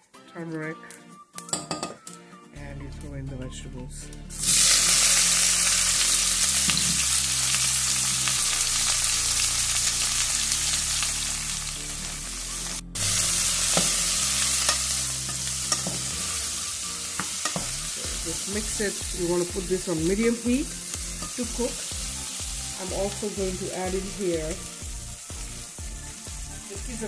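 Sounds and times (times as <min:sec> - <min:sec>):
vegetables sizzling in hot oil: 0:04.3 - 0:27.0.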